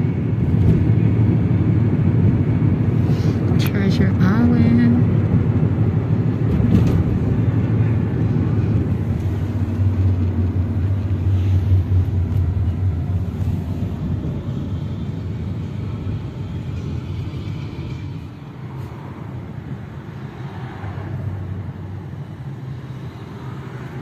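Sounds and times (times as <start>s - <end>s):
road and engine rumble in car: 0.0s - 24.0s.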